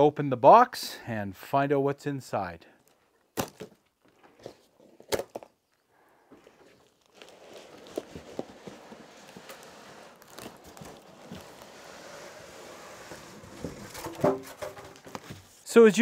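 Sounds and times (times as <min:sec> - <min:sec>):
rustling of tape on cardboard: 0:06.3 - 0:15.7.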